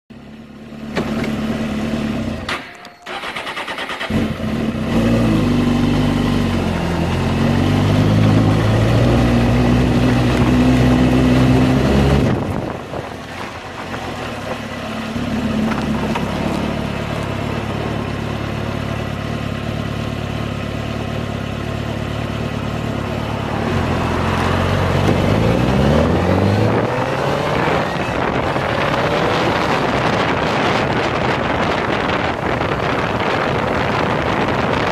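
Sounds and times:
motorcycle engine revving: 0.3 - 34.9
wind noise: 8.3 - 14.8, 23.0 - 34.9.

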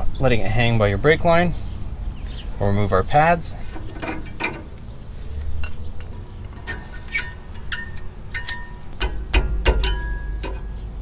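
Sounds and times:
metal brake pads clinking: 3.6 - 11.0.

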